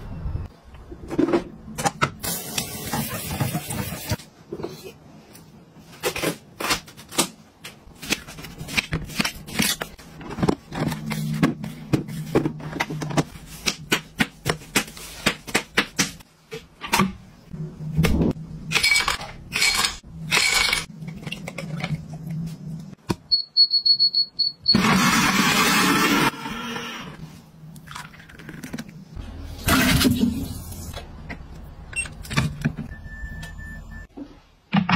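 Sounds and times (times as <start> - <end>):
blender running loudly: 24.8 - 27.1.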